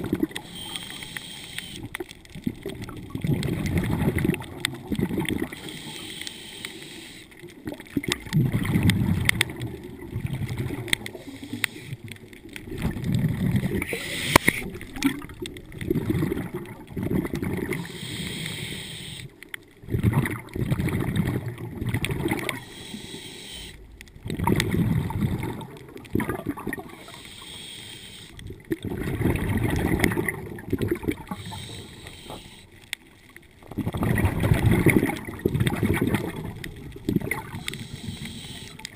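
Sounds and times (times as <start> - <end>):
exhaled bubbles rumbling: 0.0 - 0.8, 1.8 - 5.7, 7.5 - 18.0, 19.7 - 22.7, 23.8 - 27.2, 28.3 - 38.9
hissing regulator inhale: 0.4 - 1.8, 5.5 - 7.4, 11.1 - 12.0, 13.7 - 14.8, 17.7 - 19.4, 22.6 - 23.8, 26.9 - 28.4, 31.2 - 32.8, 37.5 - 38.9.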